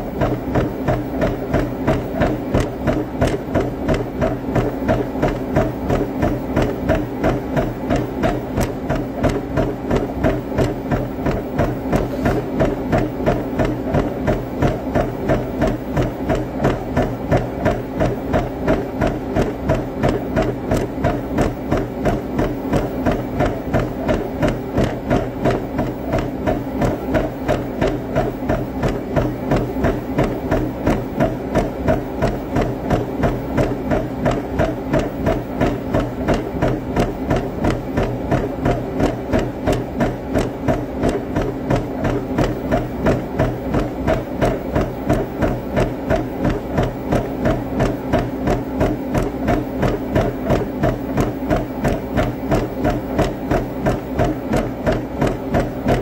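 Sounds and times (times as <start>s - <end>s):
speed bag knocking: 0.0s - 56.0s.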